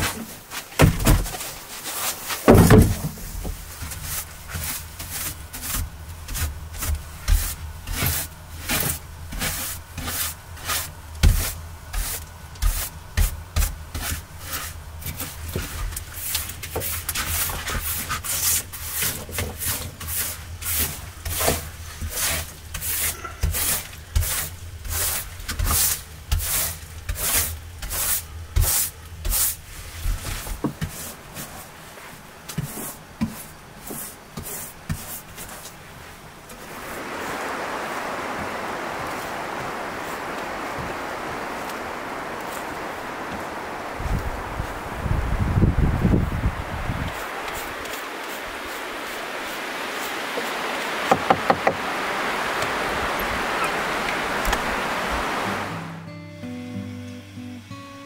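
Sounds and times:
hand scraping against wood: 0.0s - 43.8s
knocks: 2.5s - 3.2s, 51.1s - 51.8s.

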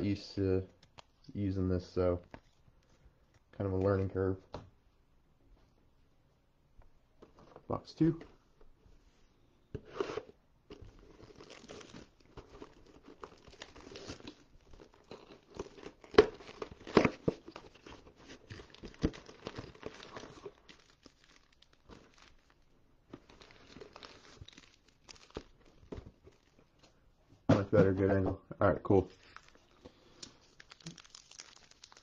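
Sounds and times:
plastic shrink wrap crinkling: 10.1s - 26.9s, 29.1s - 32.0s.

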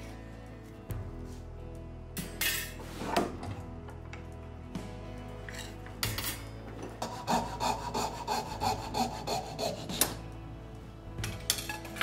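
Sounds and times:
fret saw cutting wood: 7.0s - 10.2s.

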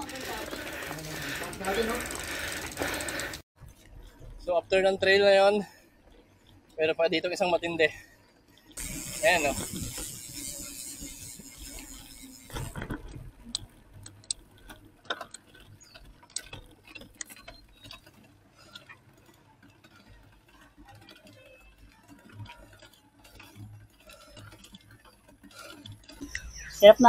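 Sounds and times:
bicycle clicks and rattles: 0.0s - 27.0s
bicycle freewheel hub ticking: 0.0s - 27.0s.

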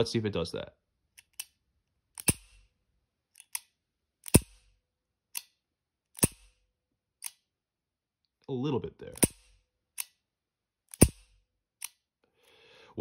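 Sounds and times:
revolver hammer clicking: 2.2s - 2.6s, 10.9s - 12.0s.

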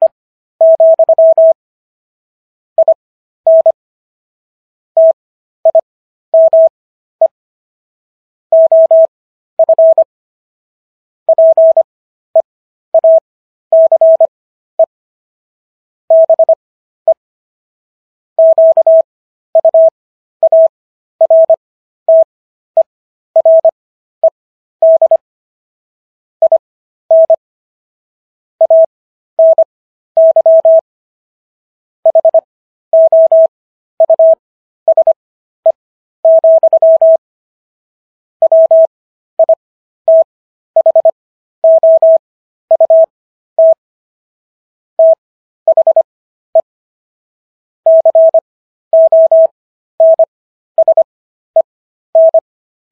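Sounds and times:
morse code beeping tone: 0.6s - 1.6s, 6.4s - 6.7s, 8.6s - 10.1s, 11.3s - 11.9s, 13.8s - 14.3s, 16.1s - 16.6s, 18.4s - 19.0s, 19.6s - 22.3s, 23.4s - 23.7s, 24.8s - 25.2s, 26.4s - 27.4s, 28.6s - 30.8s, 32.1s - 37.2s, 38.4s - 43.8s, 45.0s - 46.7s, 47.9s - 48.4s, 49.0s - 52.4s.

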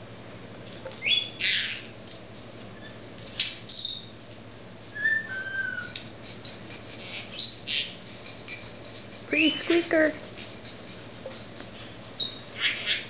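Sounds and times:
parrot shrill calls: 1.0s - 1.9s, 4.9s - 6.0s, 7.0s - 8.2s, 12.2s - 13.0s
soft bird chirping: 1.0s - 13.0s.

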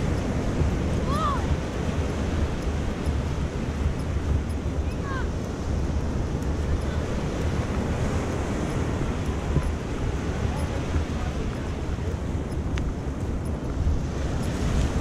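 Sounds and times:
sea surf breaking: 0.0s - 13.0s, 13.6s - 15.0s
wind buffeting the microphone: 0.0s - 15.0s.

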